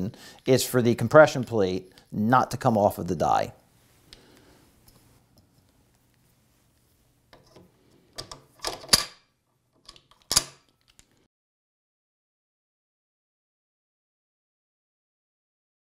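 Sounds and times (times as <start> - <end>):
metal parts clicking and clacking: 7.3 - 11.1.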